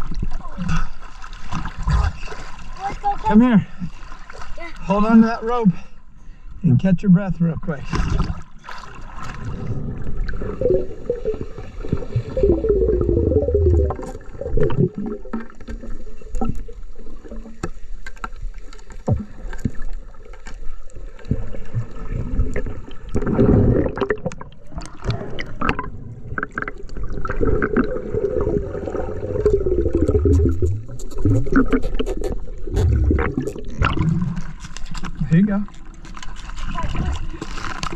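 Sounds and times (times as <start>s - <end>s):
surge of water: 0.0s - 5.7s, 7.8s - 35.4s, 36.0s - 37.9s
underwater water movement: 0.0s - 6.6s, 7.6s - 37.9s
bubbling: 8.1s - 17.6s, 21.3s - 35.3s
sharp clicks underwater: 22.6s - 28.0s, 29.4s - 37.9s.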